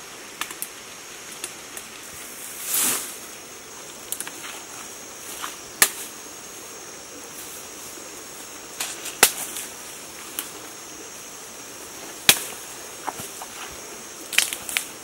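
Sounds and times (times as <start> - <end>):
pine shoots snapping: 5.4 - 6.1, 8.7 - 9.7, 12.0 - 15.0.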